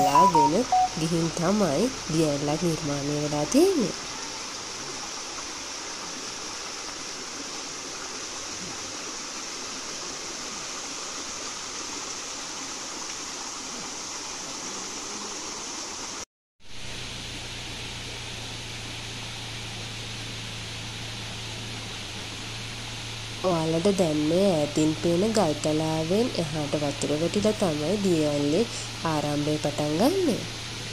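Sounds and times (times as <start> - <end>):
stream flowing over stones: 2.6 - 23.6
steady low hum: 16.7 - 30.9.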